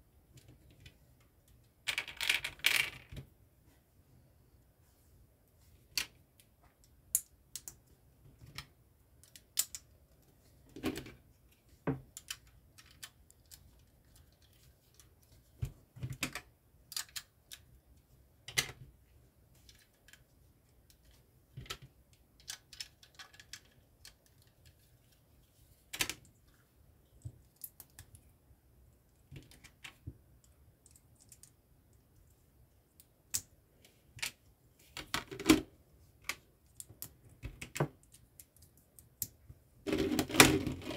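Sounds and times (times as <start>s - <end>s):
plastic bricks clicking and snapping: 7.1s - 9.8s, 16.1s - 17.7s.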